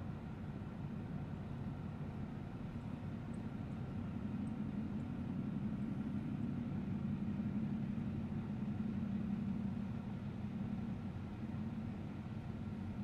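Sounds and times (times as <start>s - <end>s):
distant engines droning: 0.0s - 13.0s.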